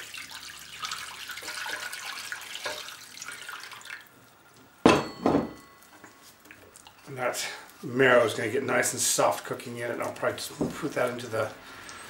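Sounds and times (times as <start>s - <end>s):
water pouring and splashing: 0.0s - 4.8s, 6.2s - 12.0s.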